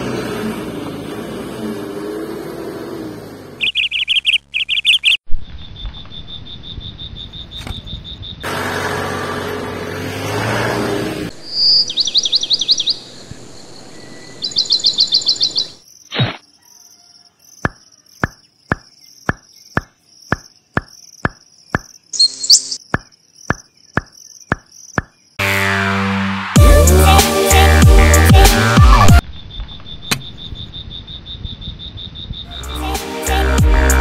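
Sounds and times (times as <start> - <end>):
bird chirps and trills: 3.6 - 8.5, 11.3 - 25.4
high insect-like trill: 21.8 - 22.8
sharp click: 29.6 - 30.4.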